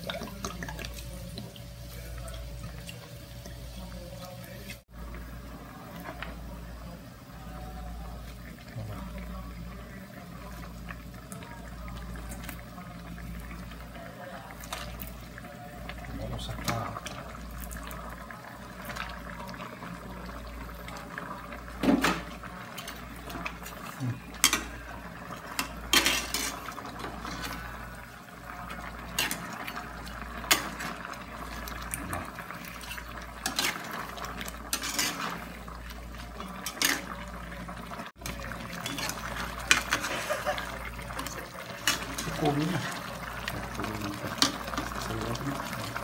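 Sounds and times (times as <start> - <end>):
sauce simmering and bubbling: 8.1 - 46.0
metal spatula scraping a wok: 34.7 - 35.4.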